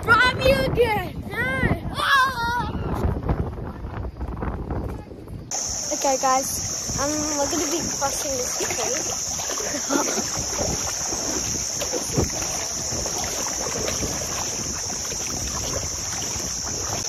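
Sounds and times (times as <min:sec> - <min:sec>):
strong wind over microphone: 0:00.0 - 0:17.0
steady high hiss: 0:05.5 - 0:17.0.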